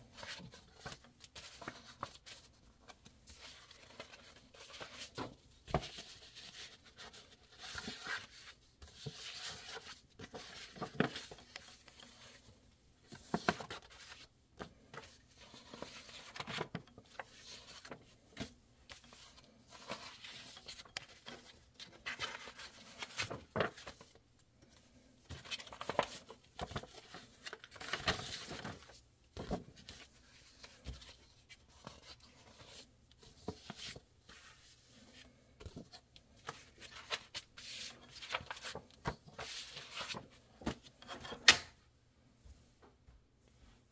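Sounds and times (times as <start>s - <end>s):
paper rustling: 0.0s - 24.2s, 25.2s - 41.0s
paper sheets slapping: 25.3s - 26.9s.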